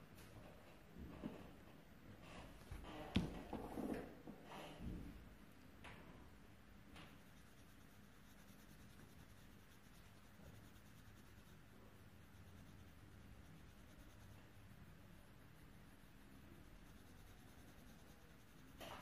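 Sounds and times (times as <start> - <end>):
pencil scratching on paper: 7.2 - 14.7, 16.0 - 19.0.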